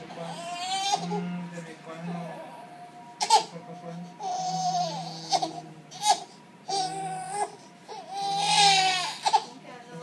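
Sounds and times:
baby crying: 0.2 - 1.3, 2.4 - 3.6, 4.2 - 9.6.

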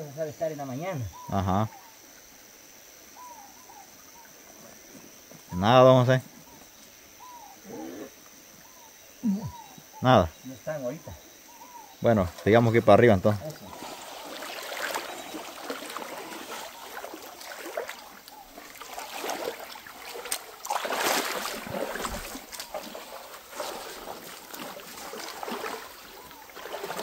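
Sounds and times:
creek running water: 8.1 - 27.0
water splashing from wading: 13.4 - 27.0.

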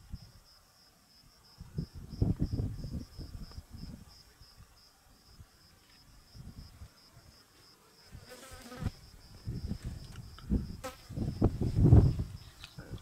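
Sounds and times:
insect chirping: 0.0 - 13.0
wind rumble on microphone: 1.4 - 4.6, 6.2 - 6.9, 8.9 - 13.0.

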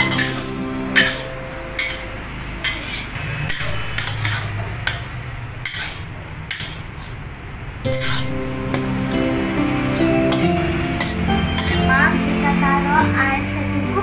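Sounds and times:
metal spatula scraping a wok: 0.0 - 2.0, 2.6 - 7.2.

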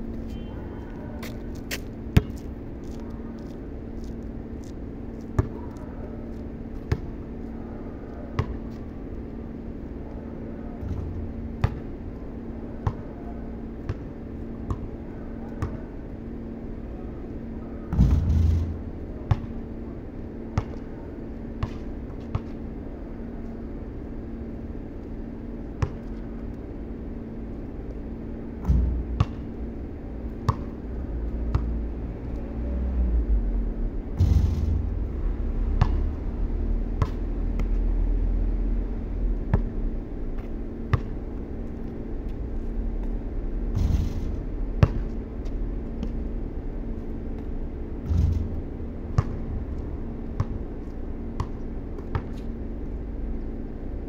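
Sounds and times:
faint hum: 0.0 - 54.0
ball bouncing on concrete: 1.7 - 5.6, 10.8 - 11.9, 14.7 - 14.9, 15.6 - 15.8, 19.3 - 19.5, 20.6 - 20.8, 21.6 - 22.6, 25.8 - 26.2, 28.6 - 29.5, 30.5 - 30.8, 31.5 - 31.7, 35.8 - 36.1, 37.0 - 37.8, 40.4 - 41.2, 44.8 - 46.2, 47.4 - 49.5, 50.4 - 52.5
basketball hitting backboard and rim: 10.8 - 11.9, 17.9 - 19.6, 28.6 - 29.6, 30.5 - 30.8, 34.2 - 34.9, 35.8 - 36.0, 37.0 - 37.2, 40.9 - 41.2, 43.7 - 45.2, 47.4 - 49.6, 51.4 - 52.5
low rumble: 31.0 - 39.4, 47.4 - 51.2.

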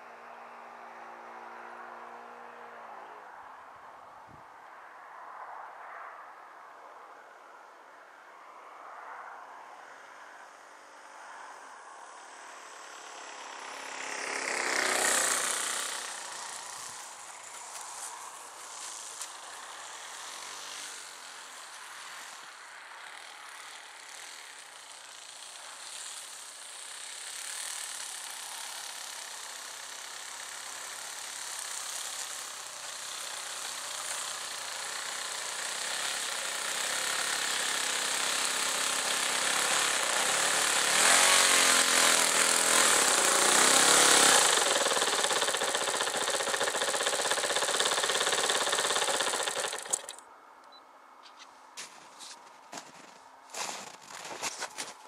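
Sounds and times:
model plane engine buzzing: 12.0 - 50.2.

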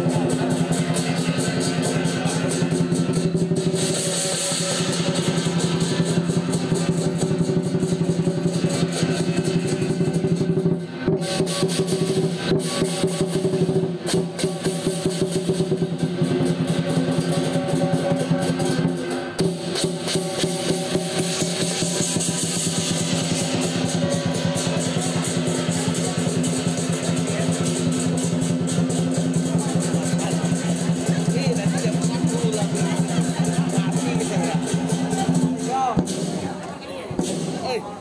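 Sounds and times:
fast dense drumming: 0.0 - 38.0
held low notes: 21.7 - 38.0.

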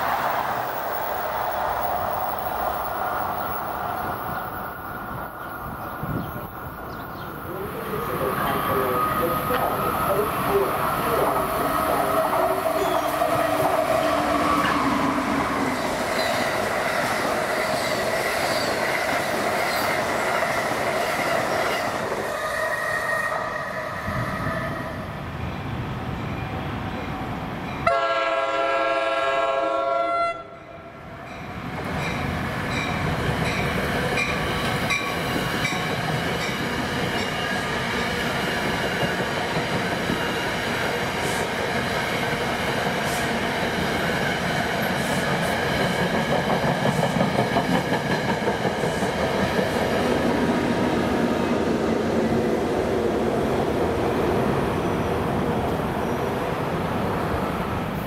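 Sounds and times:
passenger train passing close by: 0.0 - 58.0
trains rolling rumble: 0.0 - 58.0
train horn: 27.8 - 30.6.

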